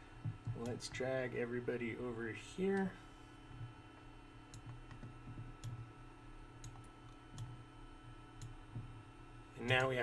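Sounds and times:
computer mouse clicking: 4.5 - 5.8, 6.6 - 7.6, 8.4 - 8.9.

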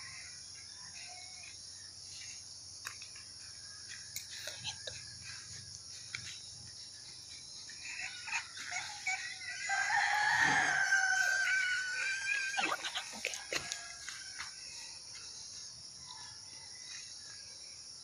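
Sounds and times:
insects chirring: 0.0 - 18.0
rooster crowing: 7.8 - 14.7.

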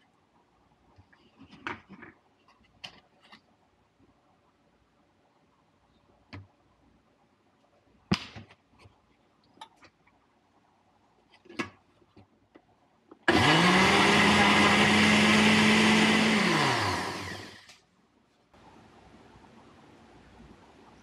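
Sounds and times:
blender motor whirring: 13.3 - 17.7.

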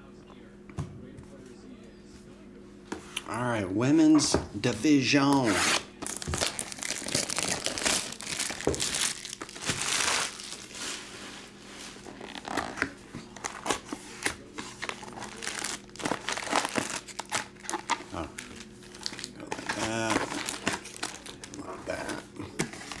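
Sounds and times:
foil packs rustling: 5.9 - 23.0
plastic shrink wrap crinkling: 6.0 - 23.0.

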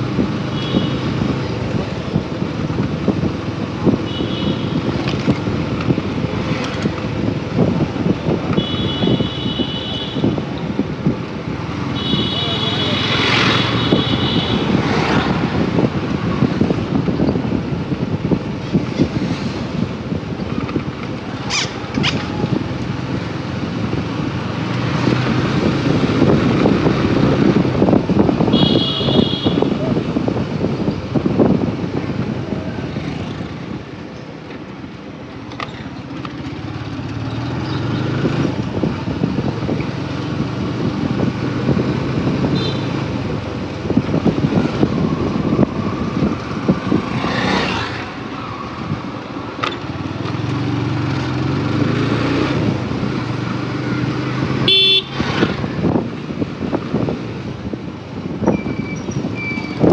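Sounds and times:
horn beeping: 28.5 - 29.8, 54.6 - 55.2.

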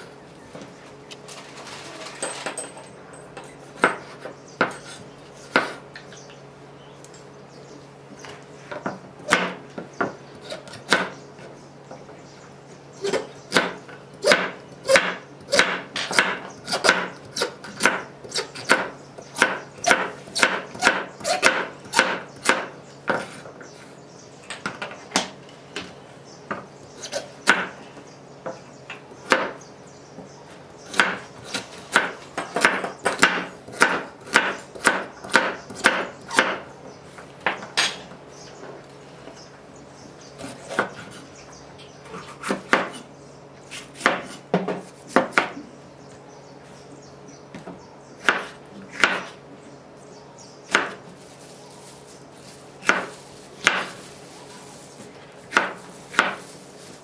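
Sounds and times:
knife chopping on wooden board: 3.8 - 5.8, 8.8 - 11.1, 13.0 - 23.4, 26.5 - 27.8, 30.9 - 36.6, 42.4 - 43.0, 43.7 - 45.6, 48.2 - 49.4, 50.7 - 51.0, 52.8 - 54.0, 55.5 - 56.5.

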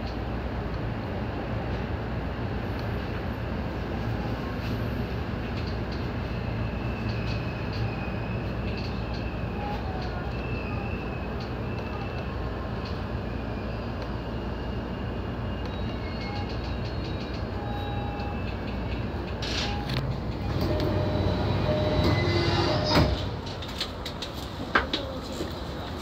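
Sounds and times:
train rumbling on track: 0.0 - 26.0.

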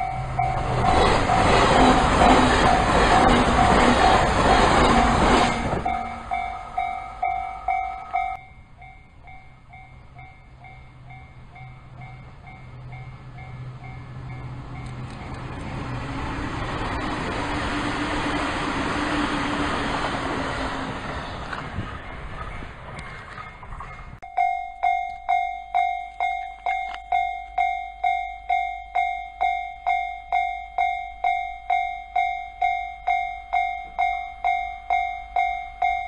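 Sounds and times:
level-crossing alarm dings: 0.0 - 14.9, 24.2 - 36.0
train rumble: 0.0 - 24.4
electric train passing: 0.0 - 24.5.

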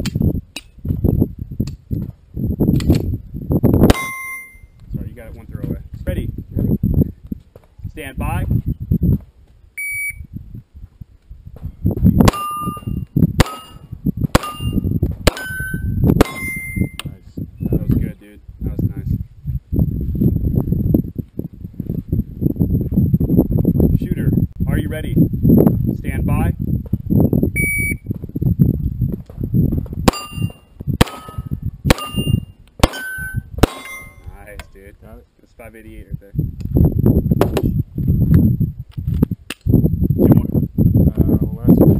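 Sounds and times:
shot timer beep: 3.9 - 4.7, 9.8 - 10.2, 15.4 - 17.0, 27.6 - 28.1
steel plate ringing when hit: 3.9 - 4.7, 12.3 - 17.0, 30.1 - 34.3
handgun shots: 12.3 - 15.6, 30.1 - 34.2.

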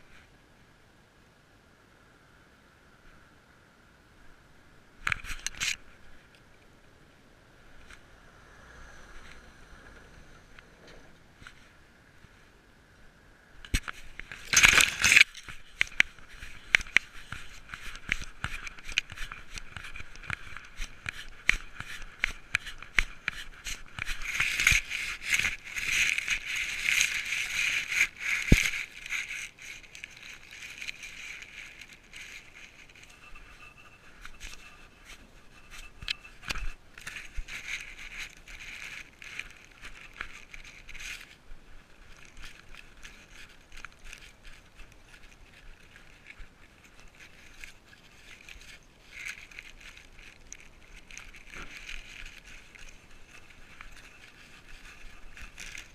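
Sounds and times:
grass and fur rustling: 13.6 - 55.9.

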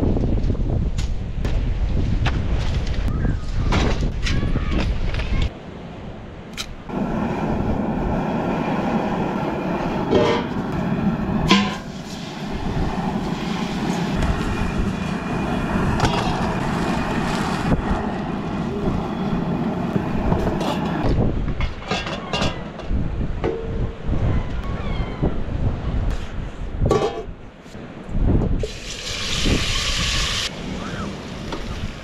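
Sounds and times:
camp stove flame rushing: 6.9 - 21.2, 28.6 - 32.0
metal pot clanks: 11.5 - 11.9, 26.9 - 27.3.

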